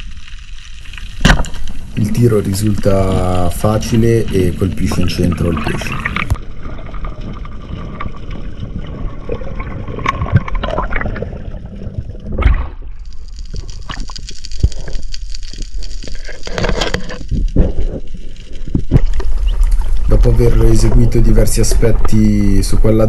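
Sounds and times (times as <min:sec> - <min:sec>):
water sloshing and splashing: 0:00.0 - 0:13.0
underwater clicks: 0:12.3 - 0:20.2.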